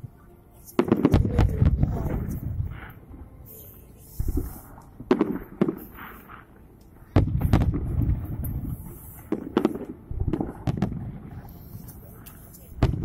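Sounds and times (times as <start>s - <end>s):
firework shells booming: 0.8s - 3.0s, 4.2s - 6.5s, 7.1s - 11.5s, 12.8s - 13.0s.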